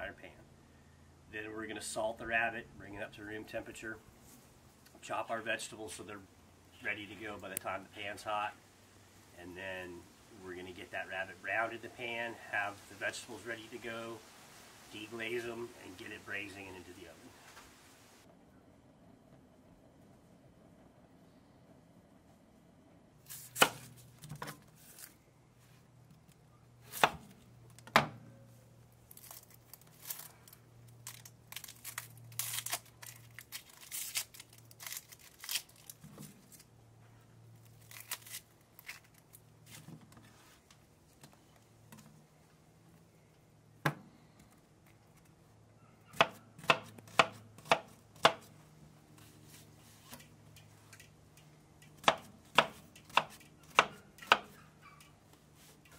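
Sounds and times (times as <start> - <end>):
onion crackling and rustling: 23.2 - 25.8, 28.8 - 41.3
knife chopping on cutting board: 46.1 - 48.5, 52.0 - 54.6.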